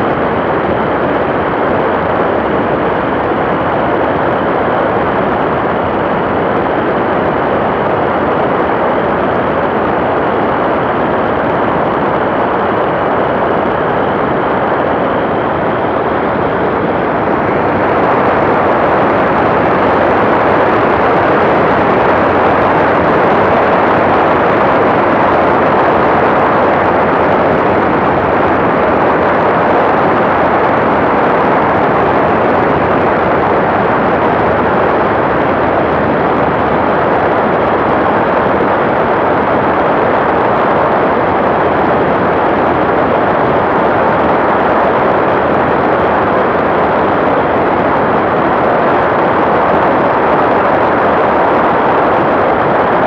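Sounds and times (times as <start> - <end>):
aircraft engine and wind noise: 0.0 - 53.0.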